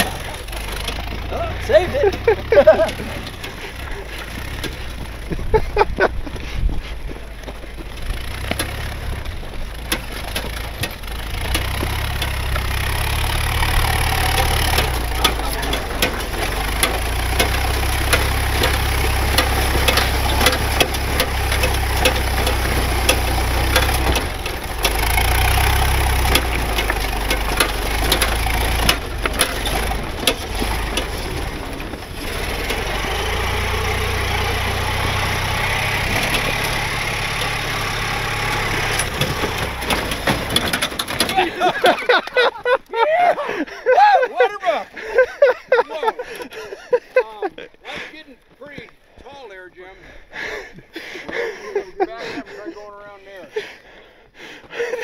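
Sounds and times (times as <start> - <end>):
vehicle body knocks and rattles: 0.0 - 42.8
vehicle engine running slowly: 0.0 - 44.0.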